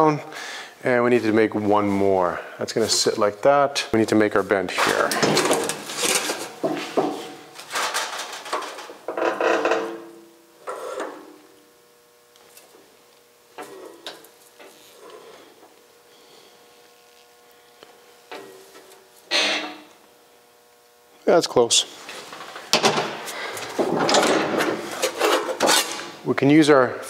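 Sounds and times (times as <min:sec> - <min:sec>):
sheet metal clanking and scraping: 0:04.8 - 0:10.1, 0:22.2 - 0:26.2.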